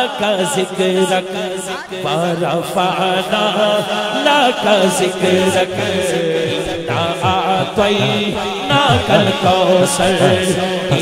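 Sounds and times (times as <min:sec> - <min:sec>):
man singing into a microphone: 0:00.0 - 0:11.0
low pulsing backing: 0:06.6 - 0:11.0.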